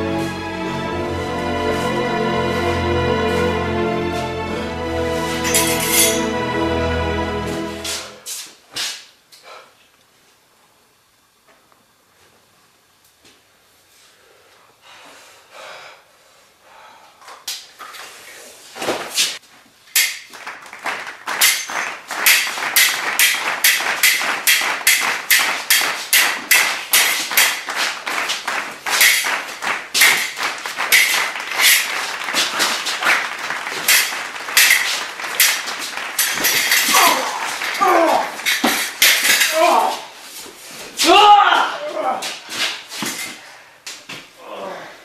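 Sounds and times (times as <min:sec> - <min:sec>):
swords clashing: 0:20.0 - 0:20.3, 0:21.3 - 0:28.0, 0:28.9 - 0:29.4, 0:30.0 - 0:40.1.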